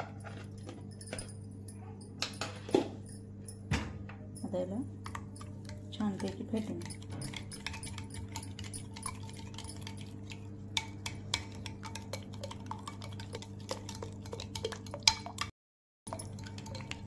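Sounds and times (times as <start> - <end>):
steady low hum: 0.0 - 14.6
spoon clinking against glass bowl: 4.3 - 15.4, 16.1 - 17.0.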